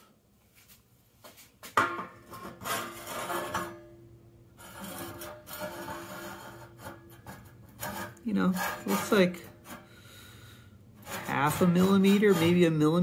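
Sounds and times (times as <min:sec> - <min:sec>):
steel rule scraping on metal: 0:02.3 - 0:03.9, 0:04.6 - 0:13.0.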